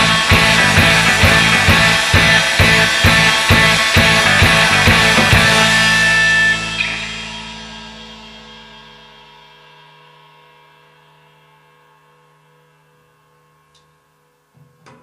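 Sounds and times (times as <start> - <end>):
rock band chord ringing out: 0.0 - 10.5.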